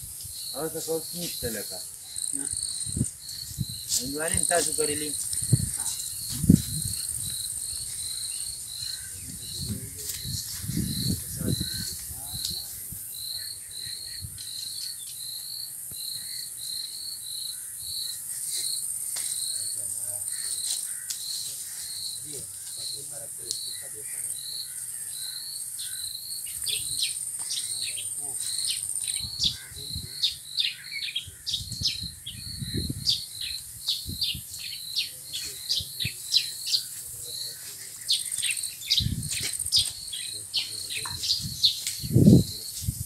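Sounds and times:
high insect buzz: 0.0 - 23.0, 24.4 - 43.0
insects chirping: 0.0 - 43.0
bird chirps: 19.4 - 42.9.

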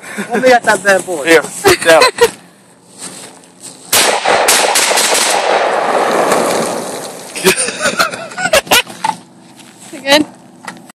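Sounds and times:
rifle firing rapid shots: 3.9 - 6.8.

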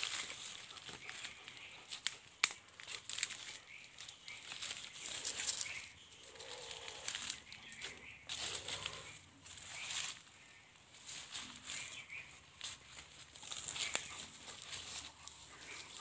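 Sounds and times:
rustling grass and dry leaves: 0.0 - 16.0.

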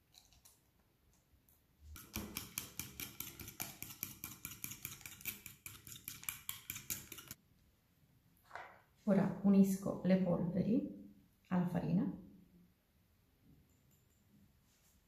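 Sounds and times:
fork beating eggs in glass bowl: 1.9 - 7.4.

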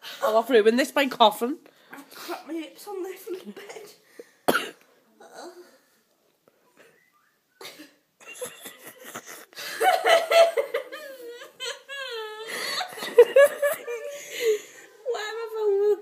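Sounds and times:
woman laughing: 7.6 - 14.7.

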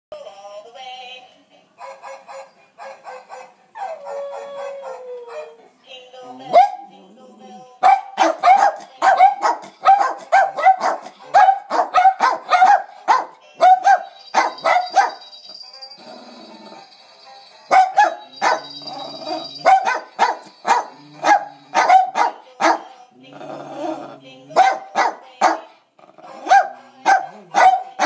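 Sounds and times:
small dogs barking: 6.5 - 6.9, 7.8 - 15.2, 17.7 - 22.9, 24.5 - 25.7, 26.3 - 28.0.

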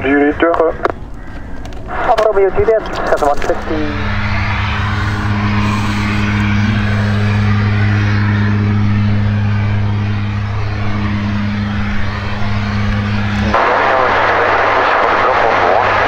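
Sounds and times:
light aircraft engine droning: 0.0 - 16.0.

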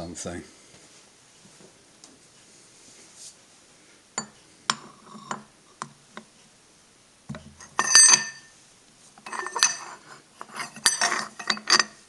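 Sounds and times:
metal clinking and scraping: 4.2 - 5.5, 7.5 - 8.6, 9.2 - 12.0.

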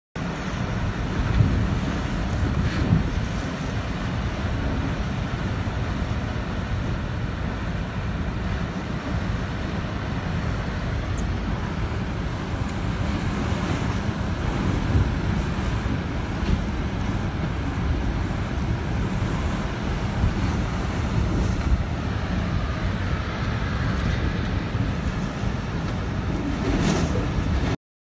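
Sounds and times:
heavy rain: 0.2 - 27.8
wind buffeting microphone: 0.2 - 27.8.

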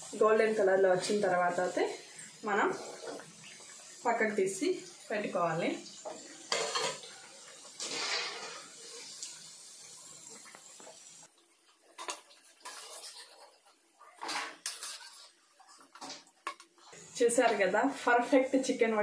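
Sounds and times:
food sizzling in hot oil: 0.0 - 19.0
metal and dishes clinking: 6.5 - 7.1.

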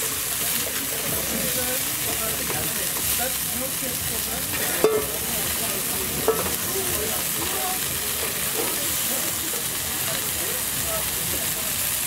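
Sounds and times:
chicken sizzling in a frying pan: 0.0 - 12.0.

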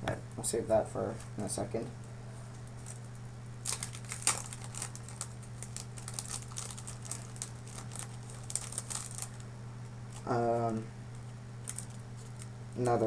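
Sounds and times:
steady low hum: 0.0 - 13.0
plastic bag crinkling: 2.6 - 9.5, 11.2 - 13.0.

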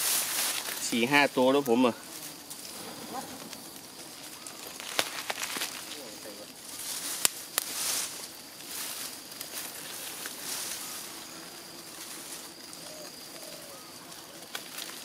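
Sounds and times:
rustling: 0.0 - 1.0, 1.6 - 15.0
dove cooing: 10.6 - 11.6, 12.5 - 14.6.

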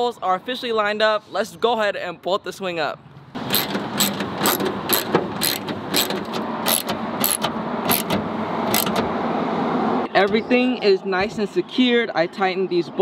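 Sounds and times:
ratchet wrench clicking: 3.4 - 9.1.

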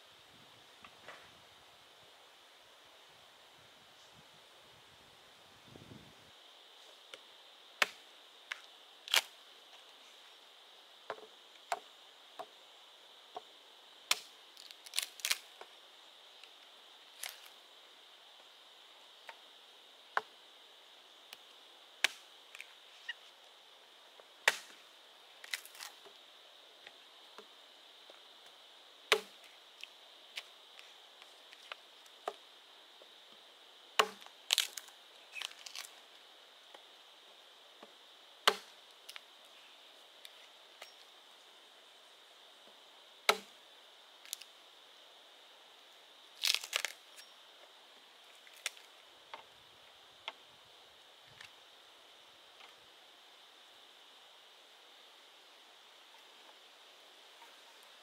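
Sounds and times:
blade chopping bamboo: 24.5 - 24.8, 29.1 - 29.4, 34.0 - 34.8, 38.5 - 38.7, 43.3 - 43.5.

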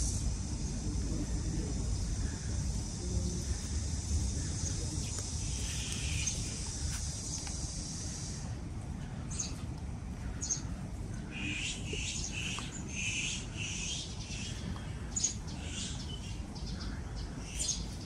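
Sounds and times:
birds chirping: 0.0 - 9.6, 10.2 - 18.0
low background rumble: 0.0 - 18.0.

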